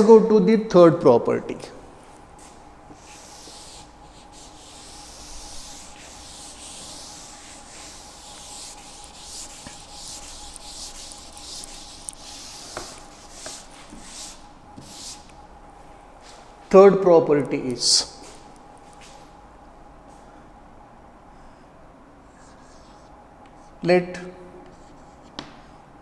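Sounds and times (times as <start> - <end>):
eraser rubbing on a chalkboard: 2.9 - 15.2.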